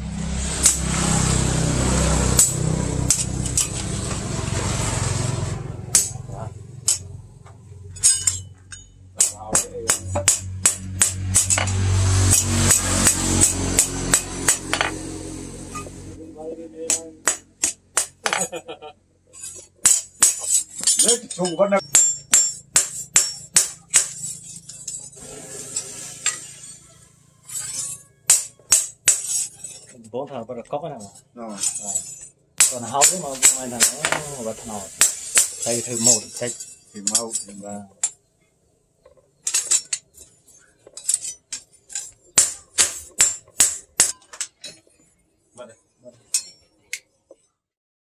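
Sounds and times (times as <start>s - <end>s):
hammer striking steel blade: 0.6s - 1.0s, 2.3s - 3.8s, 5.9s - 7.1s, 8.0s - 16.0s, 16.8s - 18.6s, 19.4s - 25.2s, 26.2s - 29.9s, 31.6s - 38.2s, 41.0s - 44.8s
light metal clinking: 7.9s - 10.3s, 35.0s - 38.2s.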